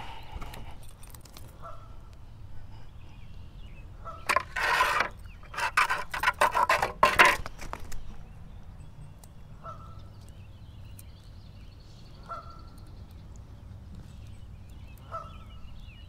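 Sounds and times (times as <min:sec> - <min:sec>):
honking bird calls: 0:15.0 - 0:15.6.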